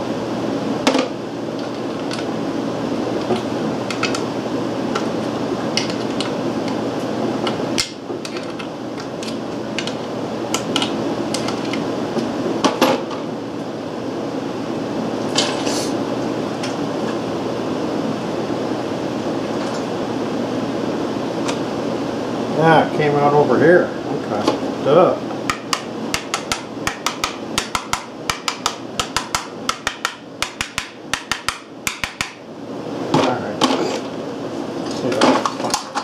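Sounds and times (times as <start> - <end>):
steady background hum: 0.0 - 36.0.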